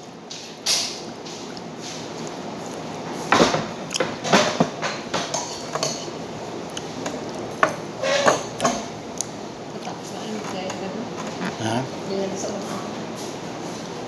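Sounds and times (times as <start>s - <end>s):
dishes and tableware clinking: 3.4s - 6.2s, 7.0s - 9.0s.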